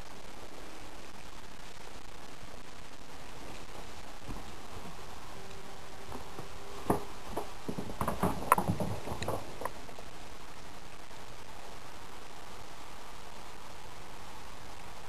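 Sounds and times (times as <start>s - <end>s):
cat paws tapping on floor: 6.1s - 9.9s.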